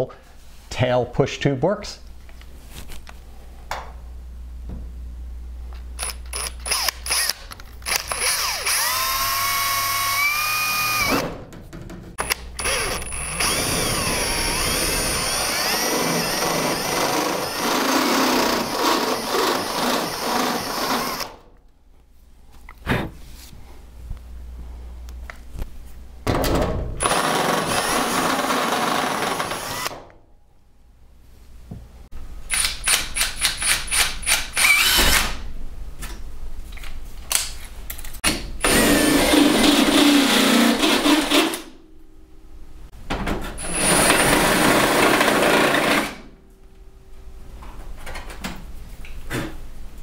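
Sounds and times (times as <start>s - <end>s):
cordless drill whining: 6.0s - 11.2s, 12.2s - 21.3s, 27.0s - 30.0s, 33.9s - 35.2s, 38.6s - 41.5s.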